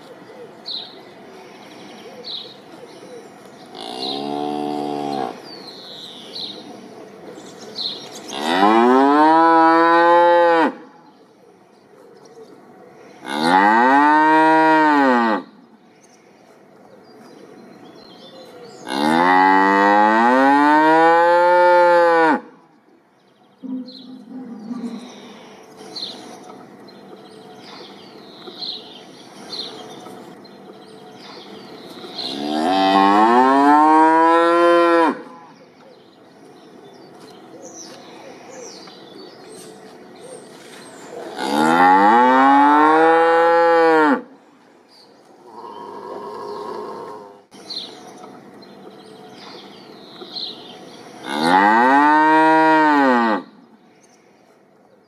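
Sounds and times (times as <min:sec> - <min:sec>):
cattle mooing: 0:41.3 - 0:44.3.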